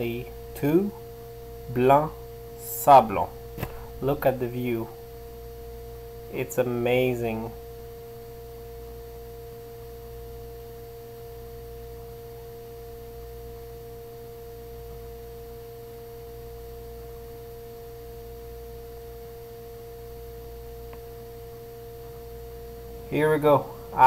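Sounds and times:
plane engine cabin drone: 0.0 - 7.9
steady hum: 0.0 - 24.0.

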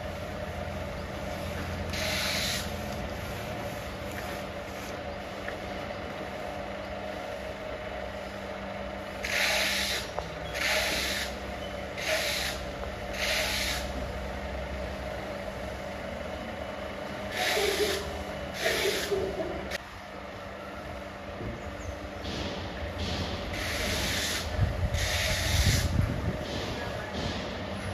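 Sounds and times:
steady low hum: 0.0 - 27.9
trowel scraping on plaster wall: 12.0 - 12.6.

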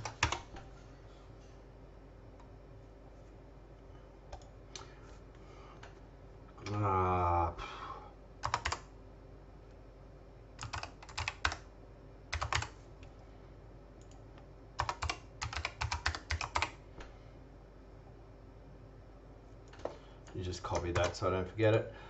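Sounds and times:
computer keyboard typing: 0.0 - 0.6, 8.4 - 8.9, 10.6 - 11.7, 12.3 - 12.8, 14.8 - 16.8, 19.7 - 21.2.

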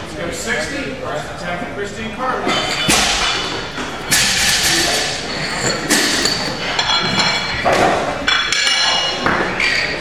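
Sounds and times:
weight plates clanking on barbell: 2.5 - 10.0.

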